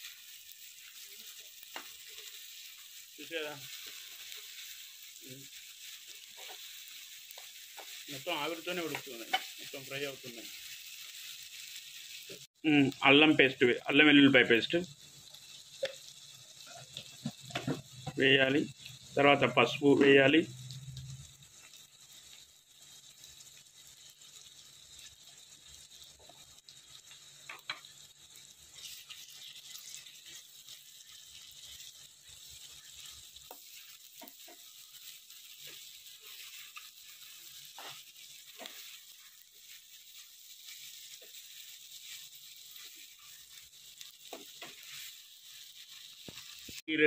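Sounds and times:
onions and fish sizzling in oil: 0.0s - 47.0s
metal spoon scraping a pan: 6.0s - 8.2s, 27.5s - 39.4s, 42.0s - 46.7s.

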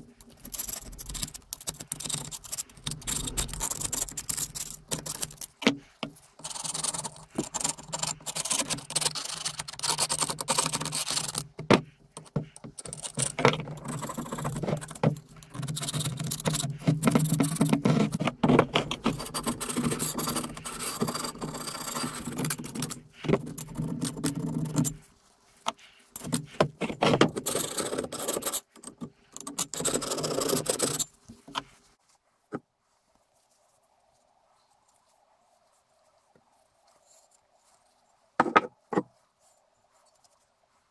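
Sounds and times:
scraper blade scraping metal: 0.0s - 11.6s, 12.2s - 25.0s, 26.2s - 28.7s, 29.4s - 31.1s.

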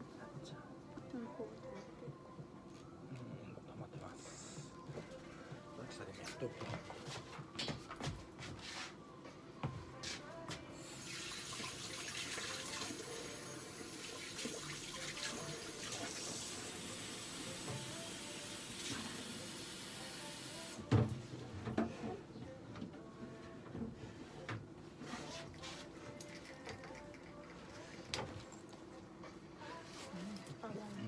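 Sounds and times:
water running from a tap: 10.8s - 17.6s.

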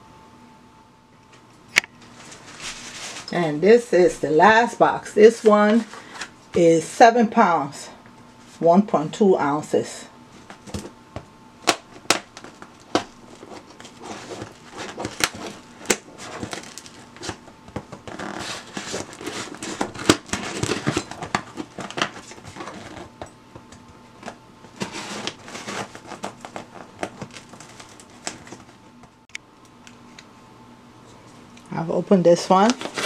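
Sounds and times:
tape and packaging tearing: 11.6s - 23.2s, 24.2s - 28.7s, 32.6s - 33.0s.

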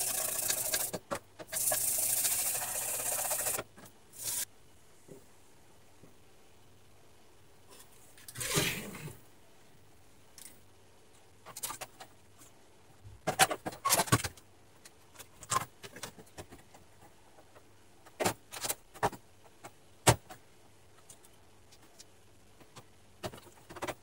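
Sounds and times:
circuit board and plastic rattling: 0.0s - 4.4s, 11.4s - 12.1s.

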